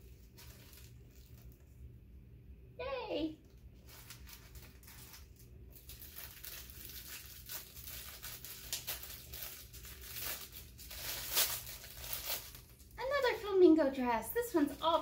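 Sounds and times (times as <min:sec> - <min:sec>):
wrapping paper crinkling and tearing: 0:00.0 - 0:01.7, 0:03.5 - 0:13.7.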